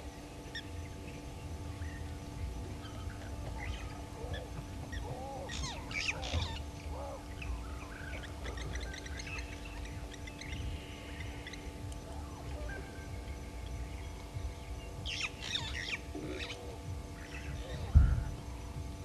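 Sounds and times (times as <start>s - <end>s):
high ticking bird notes: 0.0s - 19.0s
steady low hum: 0.0s - 19.0s
wild birds chirping and whistling: 0.0s - 19.0s.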